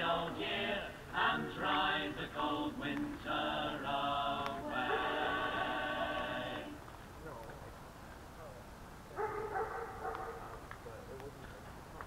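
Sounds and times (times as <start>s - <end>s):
voices chanting a slow song: 0.0s - 6.9s.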